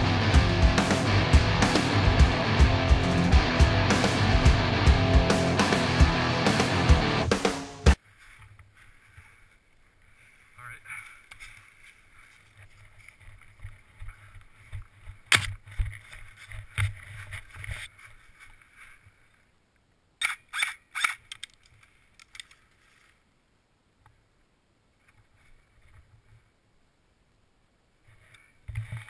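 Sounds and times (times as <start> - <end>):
gear rustling against camera: 8.0 - 19.5.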